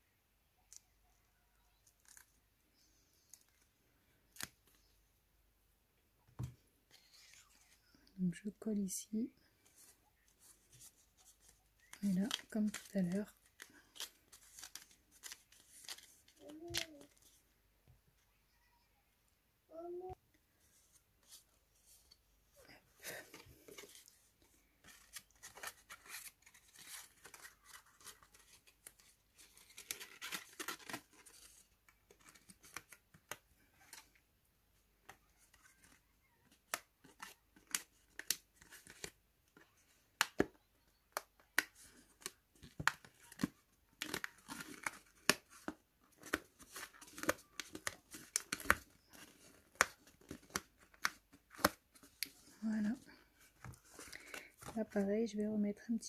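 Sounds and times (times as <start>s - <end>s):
paper rustling and crinkling: 9.5s - 17.4s, 20.6s - 34.2s, 35.0s - 40.5s, 41.2s - 55.0s.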